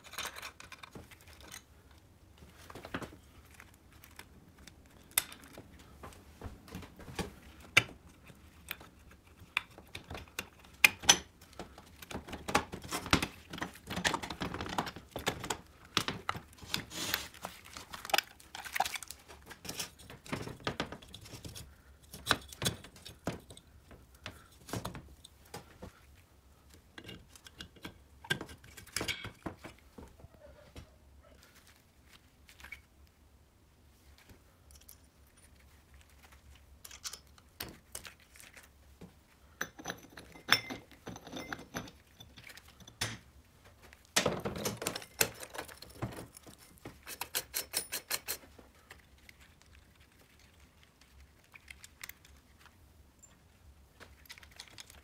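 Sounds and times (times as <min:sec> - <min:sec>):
metal parts clicking and clattering: 0:00.0 - 0:01.7, 0:36.8 - 0:38.1, 0:44.3 - 0:49.4
work gloves rustling: 0:00.0 - 0:39.6, 0:40.2 - 0:55.0.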